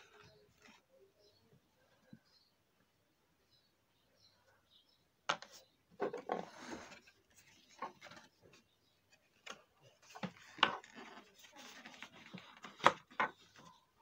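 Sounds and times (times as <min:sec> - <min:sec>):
plastic parts rubbing and rustling: 0:06.0 - 0:08.7, 0:09.5 - 0:13.8.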